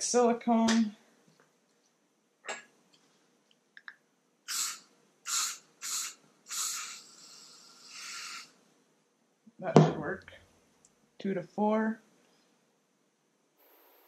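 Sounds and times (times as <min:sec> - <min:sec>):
aerosol can spraying: 0:04.5 - 0:08.5.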